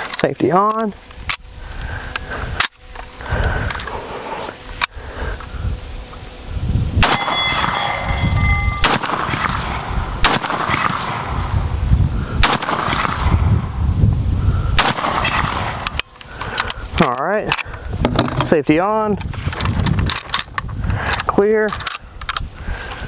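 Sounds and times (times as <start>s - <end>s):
high ringing tone: 7.0s - 10.2s
rifle shots: 7.0s - 11.6s, 12.4s - 13.6s, 14.8s - 16.0s.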